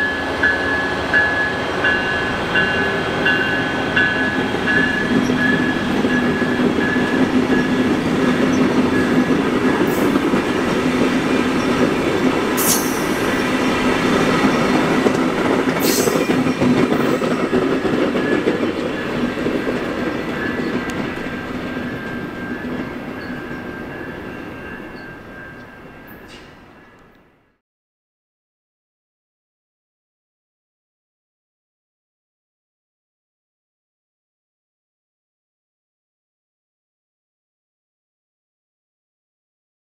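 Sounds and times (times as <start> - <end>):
train wheels rumbling on rail: 0.0 - 27.3.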